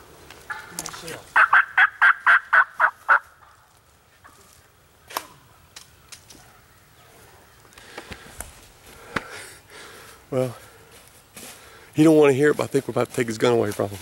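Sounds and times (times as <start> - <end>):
wild turkey yelping: 0.5 - 3.6.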